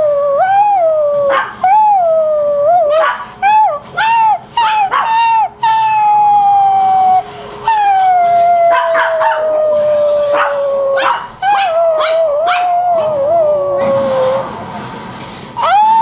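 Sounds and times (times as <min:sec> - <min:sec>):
dog howling: 0:00.0 - 0:14.6, 0:15.6 - 0:16.0
dog yipping: 0:01.2 - 0:01.7, 0:02.8 - 0:14.4, 0:15.6 - 0:16.0.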